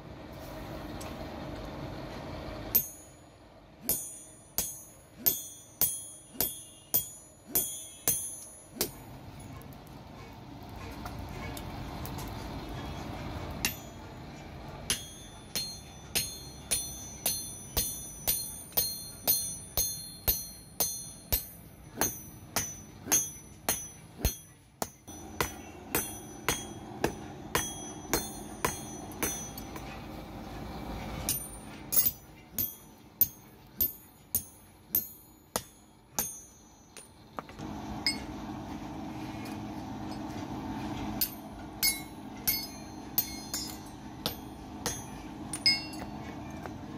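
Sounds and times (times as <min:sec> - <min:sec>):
hammer ringing on anvil: 0:02.7 - 0:03.2, 0:03.8 - 0:09.6, 0:13.6 - 0:14.2, 0:14.8 - 0:30.1, 0:31.2 - 0:37.2, 0:38.0 - 0:38.4, 0:41.2 - 0:46.3.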